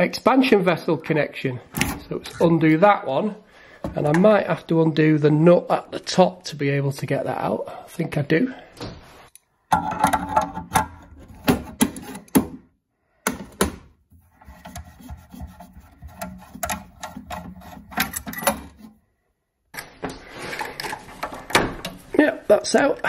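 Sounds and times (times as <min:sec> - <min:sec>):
metal clicks knocks and scraping: 0:01.7 - 0:02.2, 0:09.3 - 0:12.6, 0:13.3 - 0:19.0.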